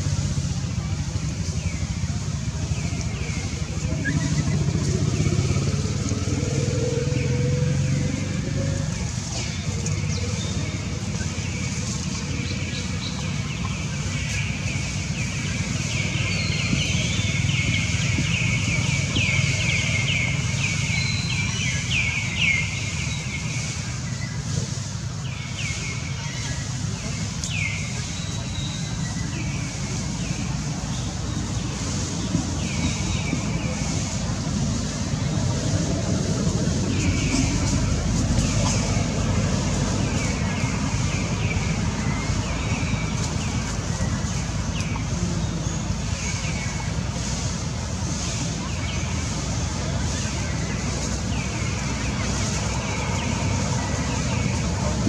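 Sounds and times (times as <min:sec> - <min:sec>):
wind buffeting microphone: 0:29.3 - 0:55.0.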